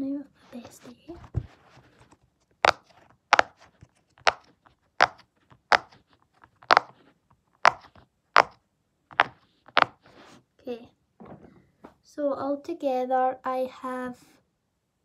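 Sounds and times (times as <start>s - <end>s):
fidget toy popping: 2.6s - 3.6s, 4.2s - 6.0s, 6.6s - 6.9s, 7.6s - 10.0s.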